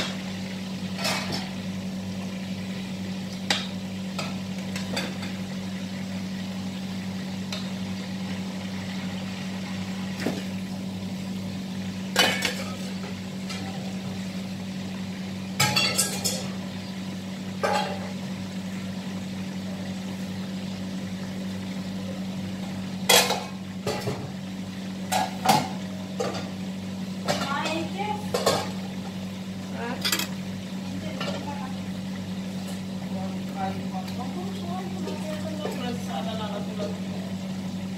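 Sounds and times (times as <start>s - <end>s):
chicken frying: 0.0s - 37.9s
metal utensils clattering on wok: 15.6s - 16.5s.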